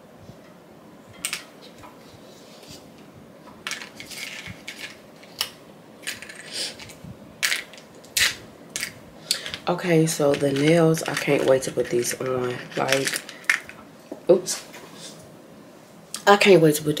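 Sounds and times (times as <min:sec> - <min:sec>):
plastic packaging crinkling: 0:03.6 - 0:13.8.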